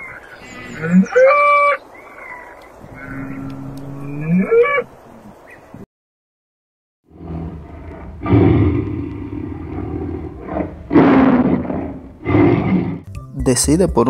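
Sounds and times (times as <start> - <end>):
tiger roaring: 2.8 - 5.4, 7.1 - 13.1.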